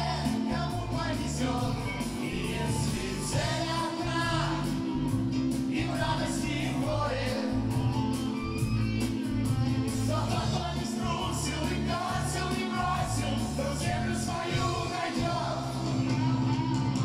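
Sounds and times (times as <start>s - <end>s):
person singing: 0.0s - 4.8s, 10.1s - 16.6s
drums: 0.0s - 17.0s
electric guitars: 0.0s - 17.0s
keyboard: 0.0s - 17.0s.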